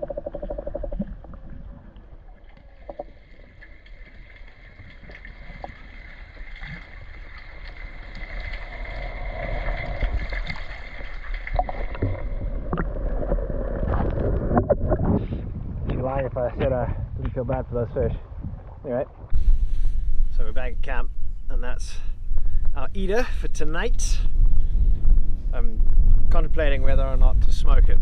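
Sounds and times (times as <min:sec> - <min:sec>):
water lapping around a kayak: 0:00.0 - 0:15.8.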